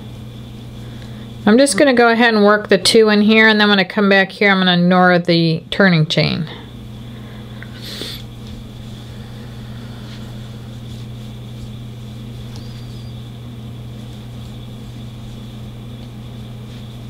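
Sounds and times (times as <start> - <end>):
low electrical hum: 0.0 - 17.0
faint high whine: 6.5 - 17.0.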